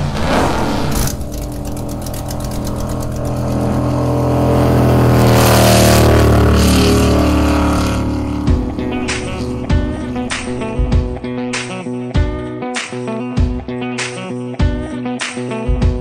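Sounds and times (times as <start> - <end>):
powerboat engine passing: 0.0 - 12.0.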